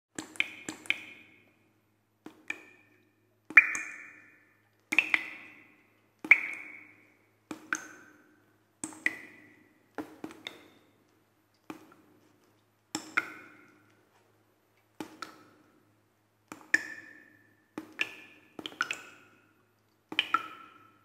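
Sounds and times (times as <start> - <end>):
water drops dripping with pings: 0.2 - 1.6, 2.3 - 12.0, 13.0 - 13.9, 16.5 - 21.0.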